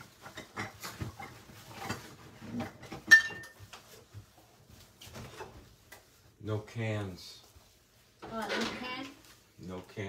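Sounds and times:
kitchenware knocks and scrapes: 0.0s - 4.2s, 8.3s - 9.1s.

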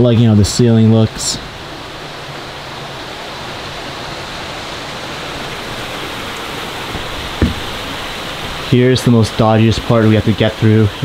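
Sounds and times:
waterfall rushing: 0.0s - 11.0s
short knock: 7.0s - 7.9s.

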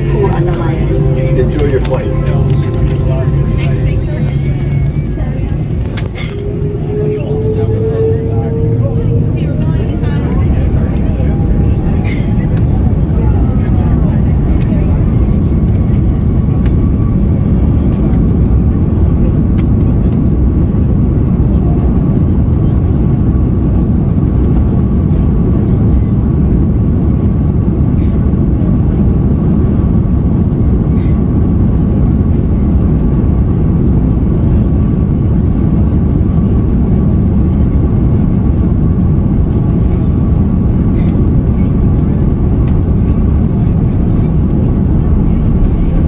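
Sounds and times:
thin steady whine: 0.0s - 17.6s
jet engines low rumble: 0.0s - 46.0s.

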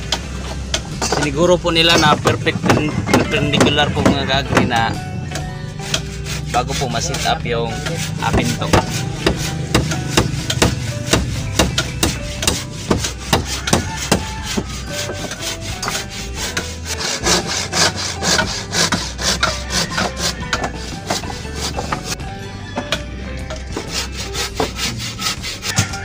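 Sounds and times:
handsaw cutting wood: 5.7s - 22.2s, 23.6s - 26.0s.

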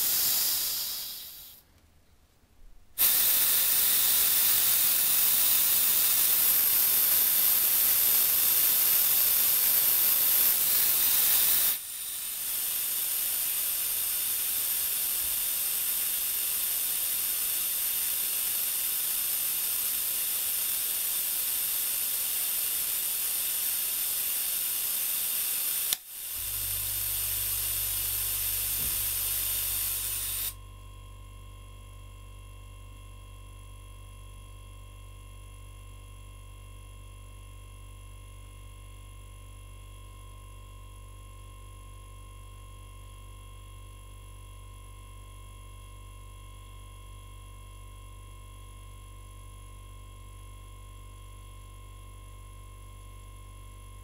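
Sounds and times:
compressed air hissing: 0.0s - 1.6s, 3.0s - 30.6s
compressor humming: 0.0s - 1.6s, 2.9s - 32.2s.

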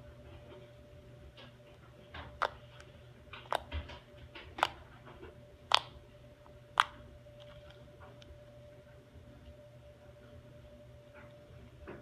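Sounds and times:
slime popping and clicking: 3.4s - 3.7s, 4.6s - 4.8s, 5.7s - 6.0s, 6.8s - 7.6s.

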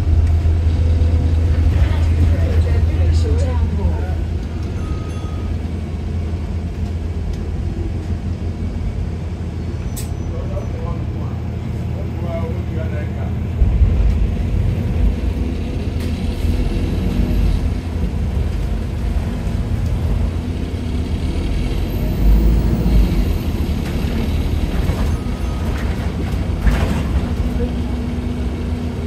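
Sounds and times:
bus engine rumbling: 0.0s - 29.0s.

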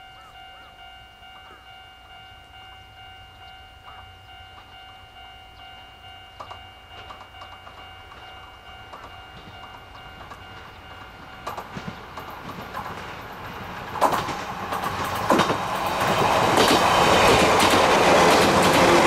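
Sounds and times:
distant train rumble: 0.0s - 19.0s
wheels clicking on rails: 3.8s - 19.0s.

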